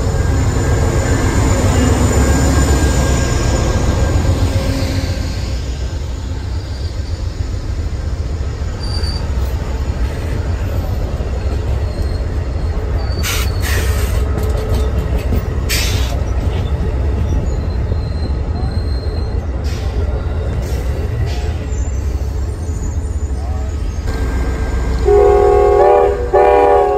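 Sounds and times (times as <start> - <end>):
train rumbling past: 0.0 - 26.9.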